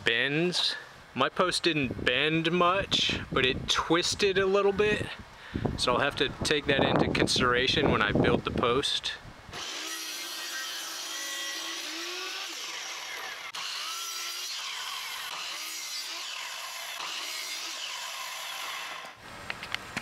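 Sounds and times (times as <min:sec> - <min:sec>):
miter saw cutting wood: 0:09.5 - 0:19.2.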